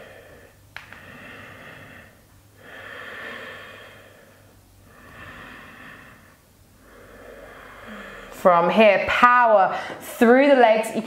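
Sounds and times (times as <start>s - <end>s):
woman breathing audibly: 0.0s - 8.4s.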